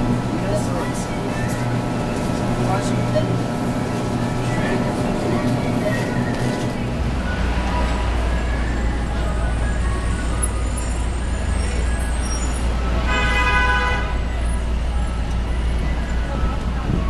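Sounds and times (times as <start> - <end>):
street traffic rumble: 0.0 - 17.0
vehicle horn: 13.0 - 14.3.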